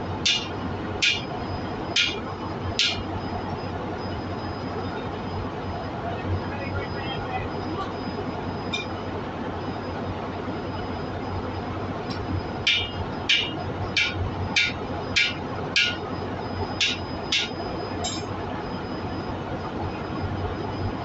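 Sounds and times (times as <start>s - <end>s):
hammer striking metal tool: 0.3s - 1.2s, 2.0s - 2.2s, 2.8s - 3.0s, 12.7s - 16.0s, 16.8s - 18.3s.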